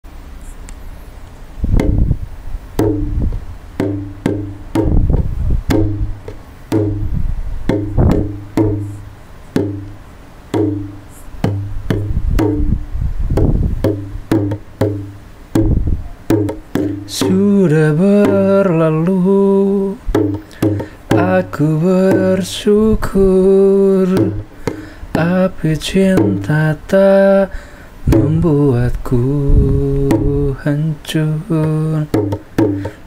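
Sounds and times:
instrumental pop music with beat: 32.1 - 33.0.

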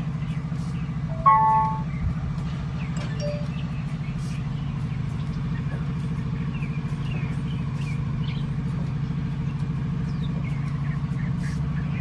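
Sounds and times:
low mechanical hum with flutter: 0.0 - 12.0
short high chirps: 1.1 - 1.9, 3.2 - 3.6.

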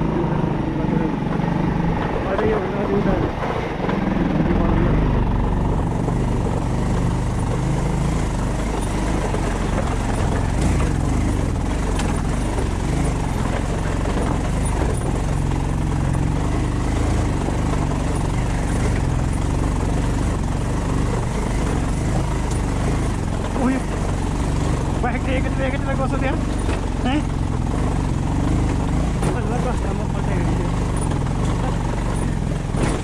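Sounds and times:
road noise: 0.0 - 33.0
vehicle engine running: 0.0 - 33.0.

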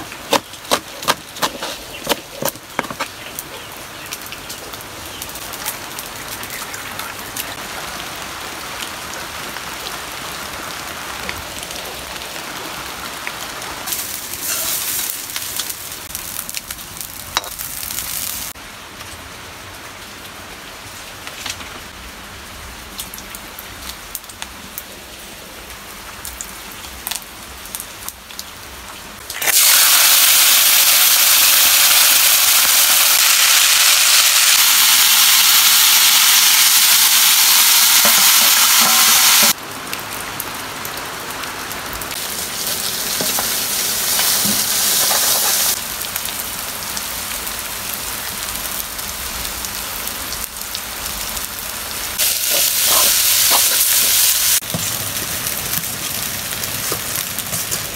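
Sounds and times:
rain hissing: 0.0 - 18.6, 29.1 - 57.9
greens sizzling in hot oil: 13.9 - 18.6, 29.2 - 39.6, 42.1 - 57.9.

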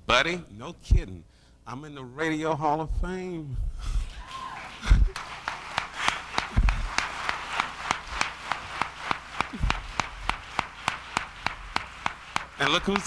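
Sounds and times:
audience clapping in rhythm: 4.0 - 13.0.

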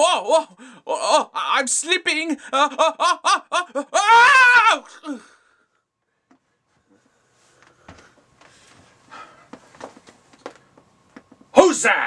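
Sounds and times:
person's high vocal cry: 0.0 - 1.4, 3.7 - 5.2.

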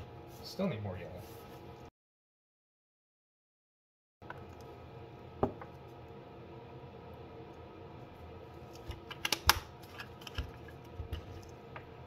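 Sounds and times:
low steady hum: 4.2 - 12.0.

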